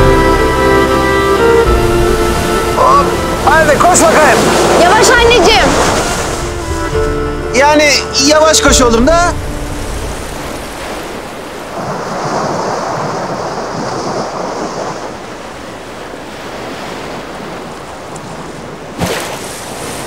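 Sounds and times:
sea surf breaking on beach: 1.4s - 7.0s, 9.5s - 20.0s.

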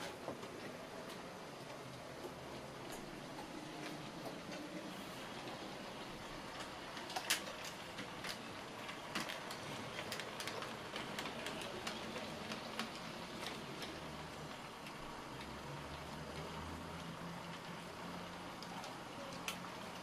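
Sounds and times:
model tram wheels clicking on rails: 0.0s - 20.0s.

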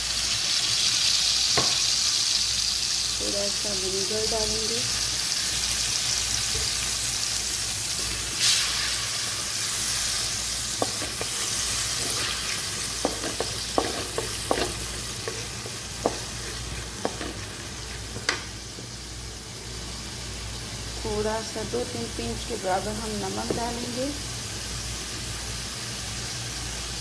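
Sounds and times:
sauce sizzling in hot oil: 0.0s - 27.0s
wooden spatula scraping a pan: 9.9s - 18.5s.

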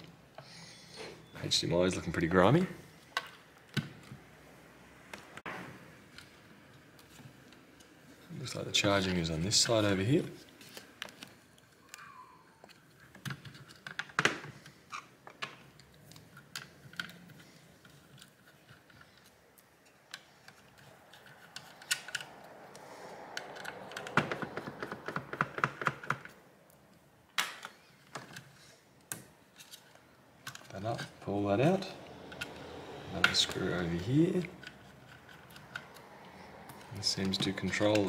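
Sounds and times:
hands clicking and tapping plastic: 11.9s - 29.3s.

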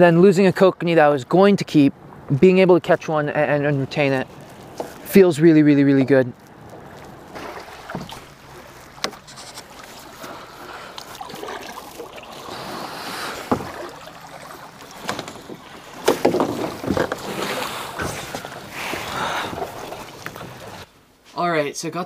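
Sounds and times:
paddle splashing in water: 6.5s - 20.9s
paddle knocking against kayak: 6.7s - 10.1s, 13.3s - 20.8s.

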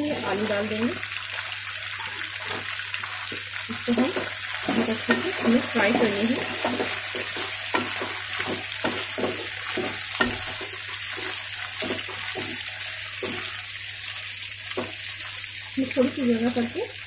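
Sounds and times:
vegetables sizzling in hot oil: 0.0s - 17.0s
spatula scraping against pan: 3.9s - 13.7s.

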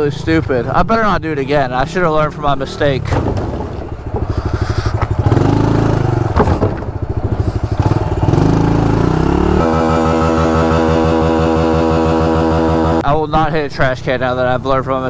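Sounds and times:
motorbike engine revving: 1.4s - 13.1s.

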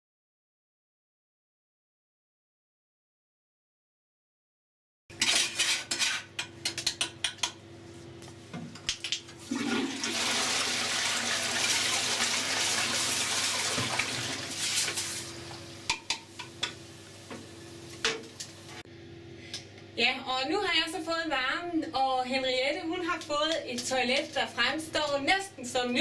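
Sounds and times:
toilet brush scrubbing: 9.4s - 15.3s
toilet flushing: 9.4s - 15.3s.

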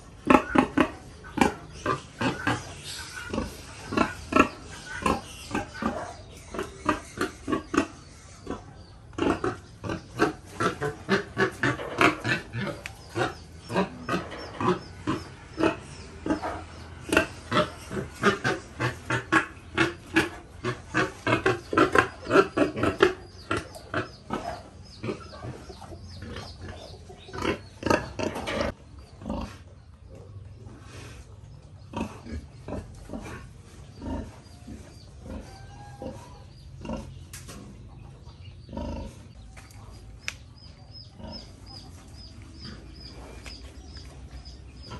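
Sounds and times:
pigs grunting: 0.0s - 39.5s, 40.6s - 44.9s.

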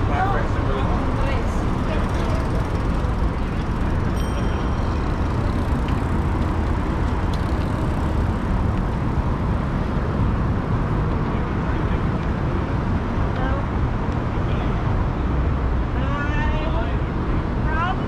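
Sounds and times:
dense motor traffic rush: 0.0s - 18.0s.

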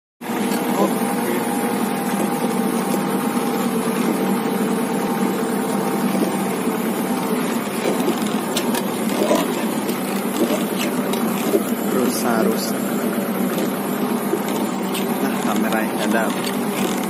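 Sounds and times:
tractor engine running: 0.2s - 17.0s.

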